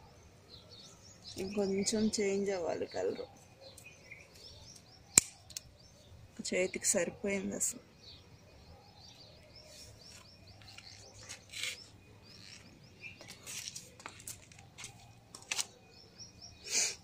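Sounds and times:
small birds chirping: 0.0s - 17.0s
rustles and scuffs: 9.6s - 15.8s.

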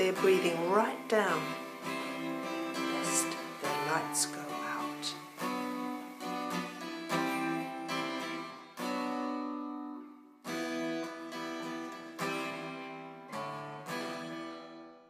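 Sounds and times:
acoustic guitar chords strummed: 0.0s - 15.0s.

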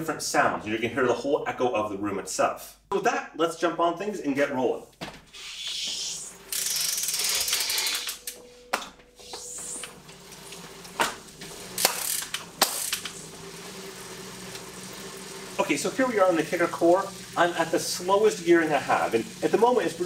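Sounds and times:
bicycle freewheel ratcheting: 6.1s - 8.3s, 10.2s - 15.6s.

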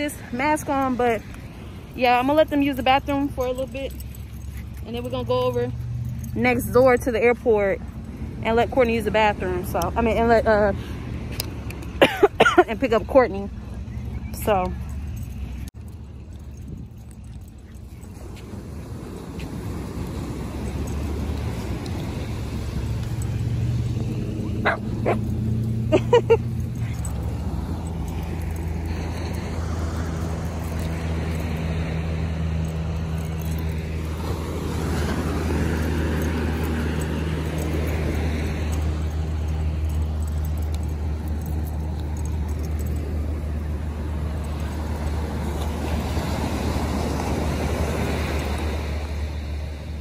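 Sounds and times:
car engine drone: 13.5s - 50.0s
dog barking and yipping: 24.3s - 25.8s.

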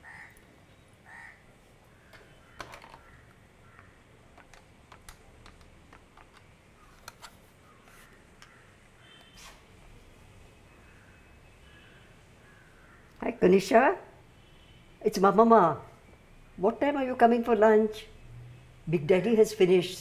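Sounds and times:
telephone keys clicking: 4.3s - 7.2s.

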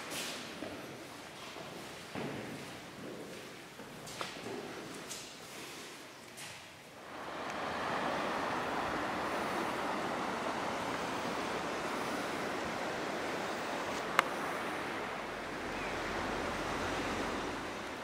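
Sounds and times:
river water over rocks: 7.0s - 18.0s.

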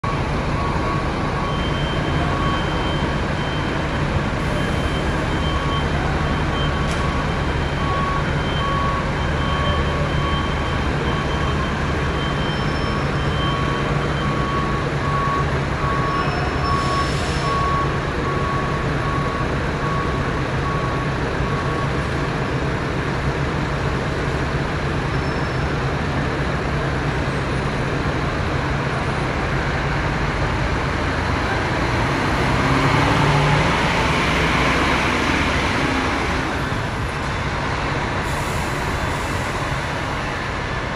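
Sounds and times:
reversing alarm beeping: 0.0s - 22.1s
bus diesel engine running: 0.0s - 40.9s.

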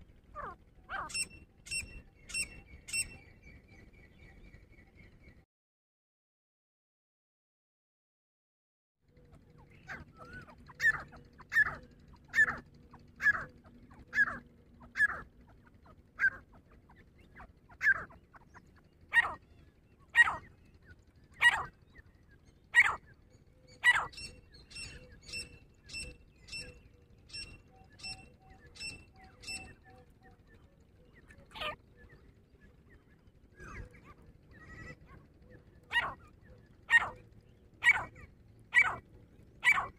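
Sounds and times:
francolin calling: 0.4s - 3.3s, 9.7s - 30.4s, 33.5s - 39.0s, 39.6s - 39.9s.

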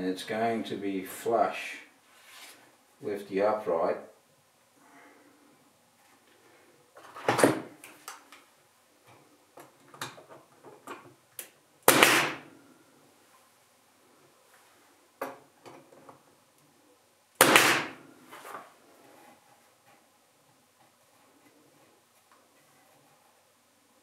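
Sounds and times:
nail gun shots with hiss: 11.9s - 12.4s, 17.4s - 18.0s.

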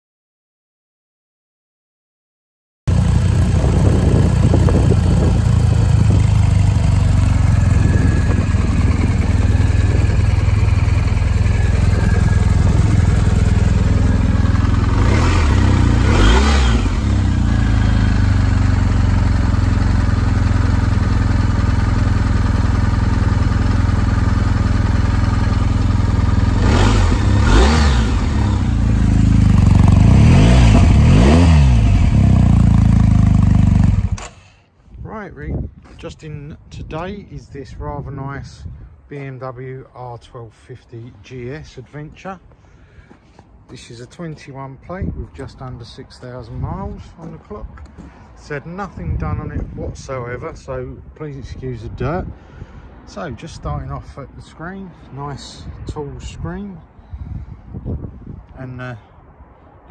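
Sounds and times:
engine revving: 2.9s - 34.3s
motorcycle engine idling: 2.9s - 34.3s.

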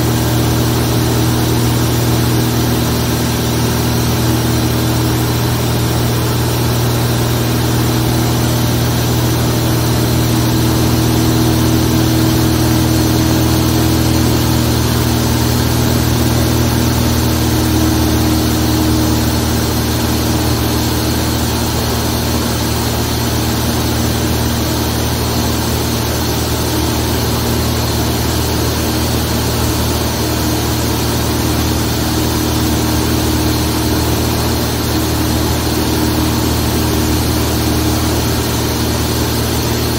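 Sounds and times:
aircraft engine and propeller: 0.0s - 39.9s.

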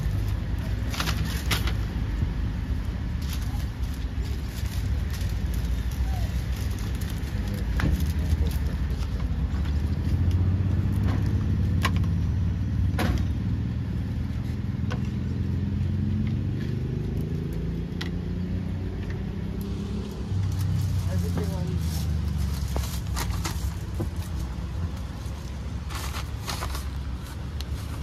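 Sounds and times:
engine humming: 0.0s - 28.0s.

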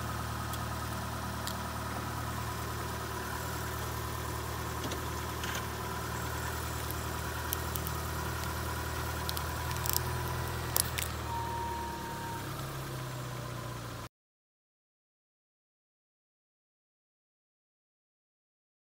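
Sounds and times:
car engine idling: 0.0s - 14.1s
camera cracking and snapping: 6.8s - 11.2s.

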